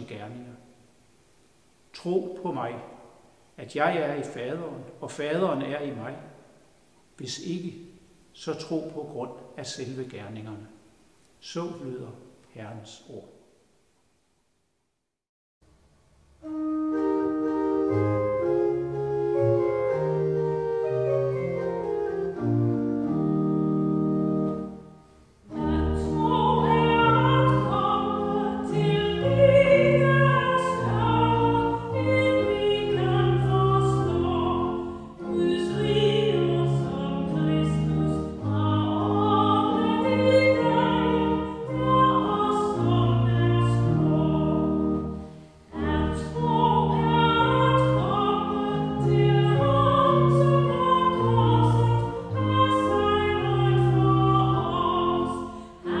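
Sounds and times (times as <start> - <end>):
pipe organ chords: 16.4 - 56.0
woman singing a hymn: 25.5 - 56.0.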